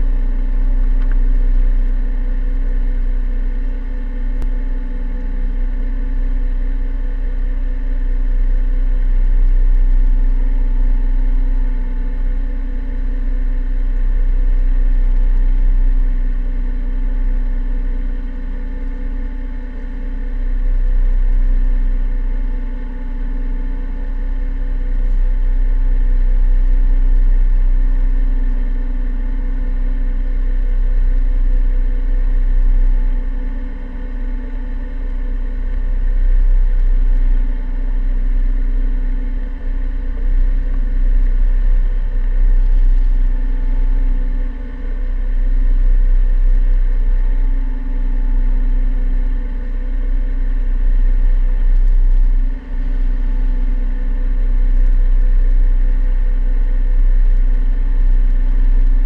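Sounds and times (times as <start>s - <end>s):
boat engine running: 50.5s - 56.1s.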